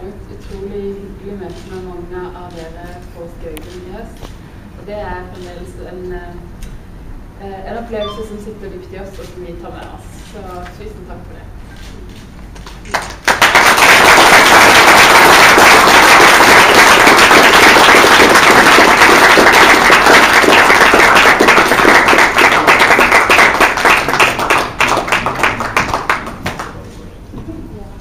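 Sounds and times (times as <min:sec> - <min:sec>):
audience applauding: 0:12.8 - 0:26.8.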